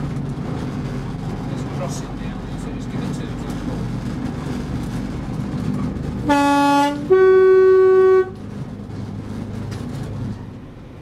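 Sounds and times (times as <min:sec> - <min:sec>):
railcar running noise: 0:00.0 - 0:11.0
two-tone train horn: 0:06.2 - 0:08.4.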